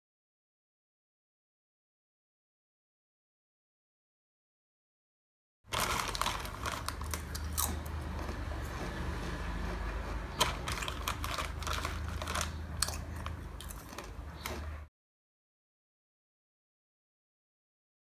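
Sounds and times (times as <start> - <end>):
foil packet crinkling: 5.7 - 8.3, 10.4 - 14.7.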